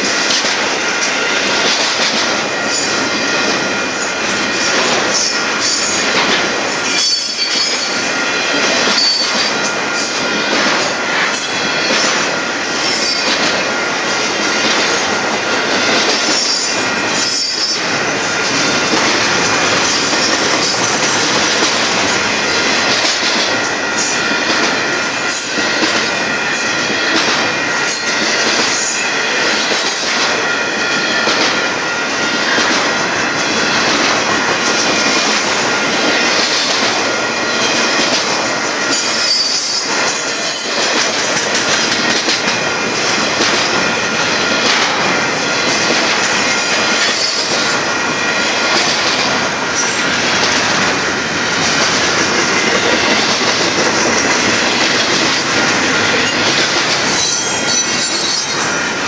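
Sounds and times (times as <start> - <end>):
rail joint clacks: 0.0 - 59.0
train wheels rumbling on rail: 0.0 - 59.0
wheel squeal: 57.2 - 58.6.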